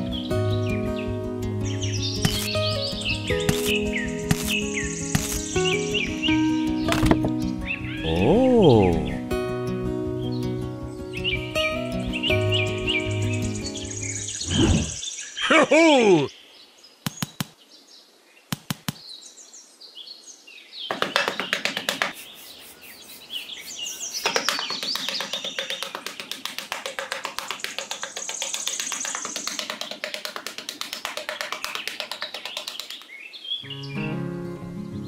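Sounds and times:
bird chirps: 0.0s - 9.2s, 11.1s - 15.6s, 16.2s - 26.4s, 27.4s - 30.0s, 30.9s - 35.0s
sharp taps: 17.1s - 17.6s, 18.5s - 19.0s, 20.9s - 22.2s, 24.2s - 33.1s.

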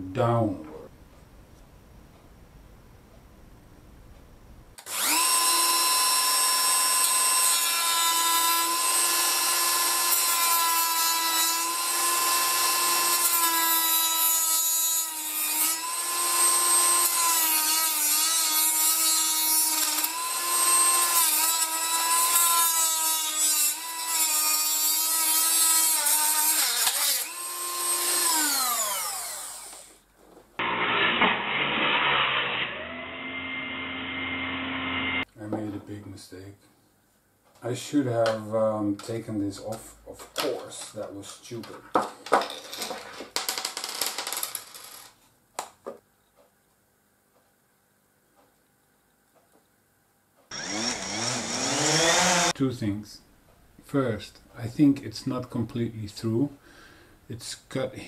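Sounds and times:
rotary tool cutting metal: 4.8s - 29.9s, 30.6s - 35.2s, 50.5s - 52.6s.

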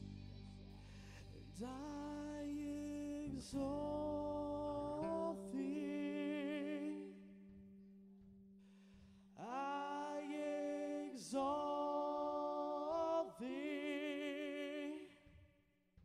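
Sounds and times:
low sustained keyboard note: 0.0s - 7.2s
man singing wavering notes: 1.3s - 7.4s.

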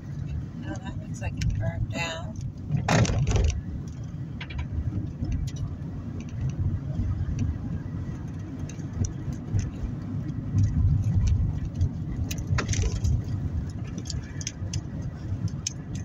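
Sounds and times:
low rumble of tyres and engine: 0.0s - 16.0s
clicks and rattles: 8.2s - 16.0s.

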